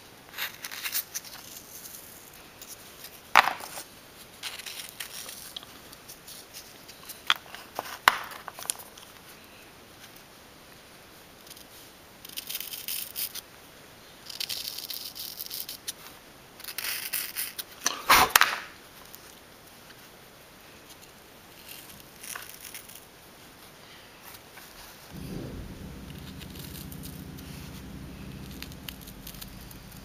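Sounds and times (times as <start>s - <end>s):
sharp knock: 25.2s - 30.0s.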